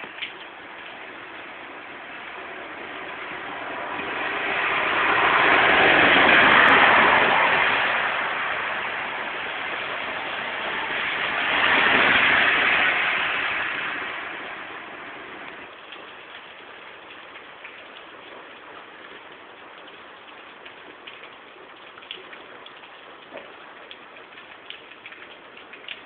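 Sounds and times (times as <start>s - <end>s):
tyres hissing on wet road: 0.0s - 19.8s
steady rain: 0.0s - 26.0s.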